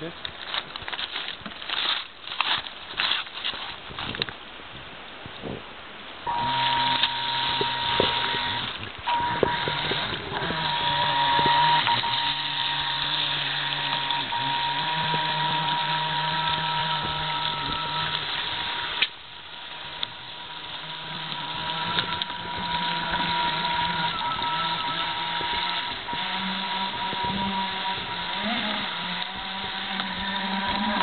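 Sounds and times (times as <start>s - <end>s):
electric motor high whine: 6.3s - 31.0s.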